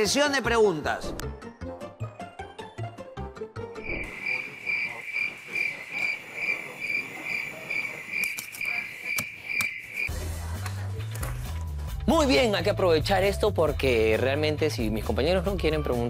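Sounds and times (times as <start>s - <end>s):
cricket chirping: 3.8s - 10.1s.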